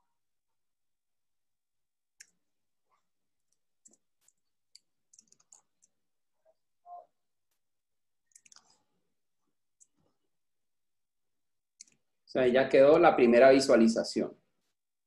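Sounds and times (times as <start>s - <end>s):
mouse and keyboard clicking: 3.5s - 6.0s, 8.3s - 8.8s, 11.8s - 12.0s.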